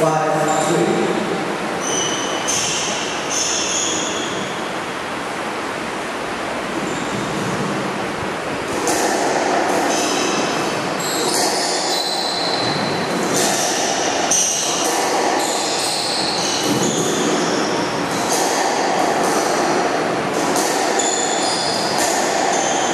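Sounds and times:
squash ball smacks: 0:08.7 - 0:10.2, 0:20.4 - 0:21.0.

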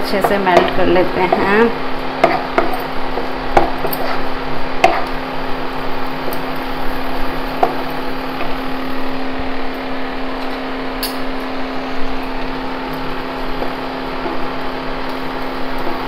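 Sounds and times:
cooling fan running: 0:00.0 - 0:16.0
induction cooktop humming: 0:00.0 - 0:16.0
wooden spatula knocking on pan: 0:00.2 - 0:01.6.

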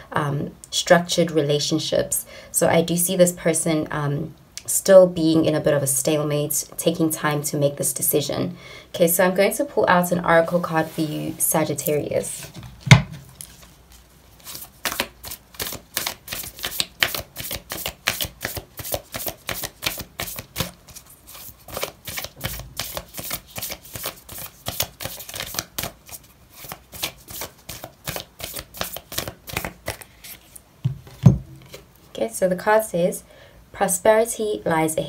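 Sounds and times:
cards being shuffled: 0:12.4 - 0:31.9.

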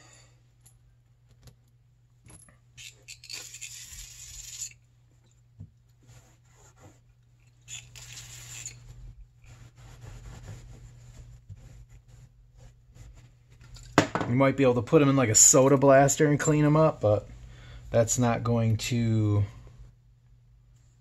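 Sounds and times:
metal parts clicking and clinking: 0:02.2 - 0:04.8
steady low hum: 0:03.8 - 0:21.0.

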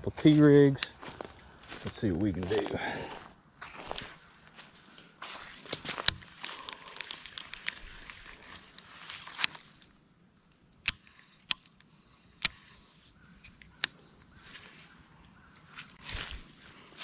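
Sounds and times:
footsteps rustling through vegetation: 0:00.0 - 0:10.0, 0:14.3 - 0:17.0
sharp single clicks: 0:10.7 - 0:12.7, 0:13.4 - 0:14.0.

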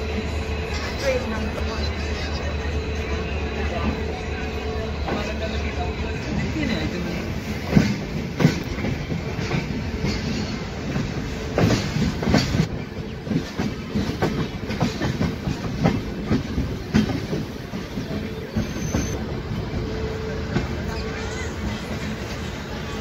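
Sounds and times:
train running gear rumble: 0:00.0 - 0:23.0
train wheels clattering over rail joints: 0:07.4 - 0:19.2.

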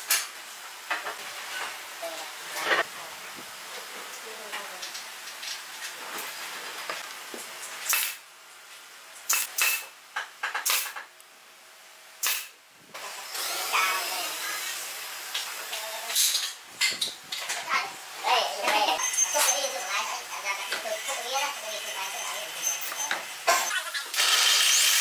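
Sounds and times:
power nailer shots: 0:07.9 - 0:08.2, 0:09.3 - 0:09.9, 0:12.2 - 0:13.7.

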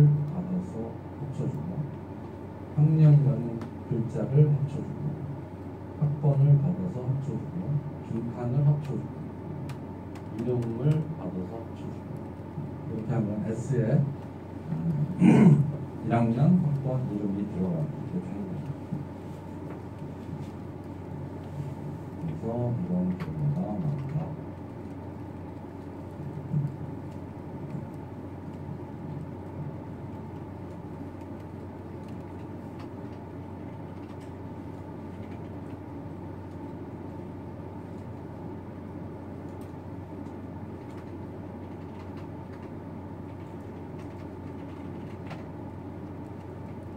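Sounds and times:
low room hum: 0:00.0 - 0:46.9.

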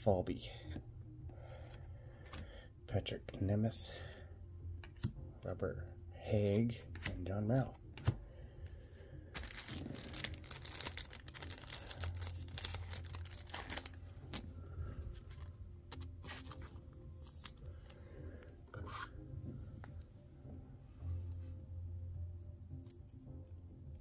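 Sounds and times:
plastic card sleeve rustling: 0:09.3 - 0:19.3.

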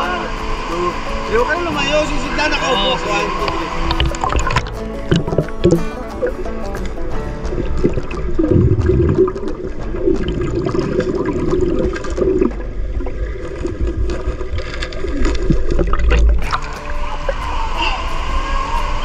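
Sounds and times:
underwater bubbling and gurgling: 0:03.1 - 0:18.6
low underwater rumble: 0:03.4 - 0:18.3.

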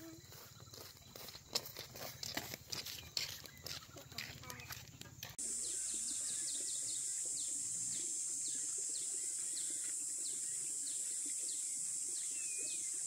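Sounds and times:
small bird chirping: 0:00.0 - 0:13.0
high-pitched insect drone: 0:05.4 - 0:13.0.

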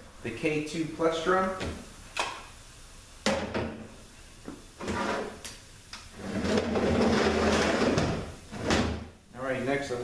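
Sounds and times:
heavy metal case scraping: 0:06.2 - 0:09.0.

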